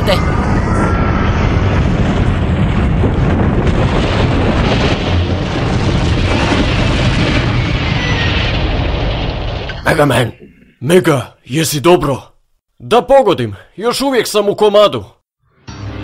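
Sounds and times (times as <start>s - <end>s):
cartoon building collapse rumble: 0.0s - 10.8s.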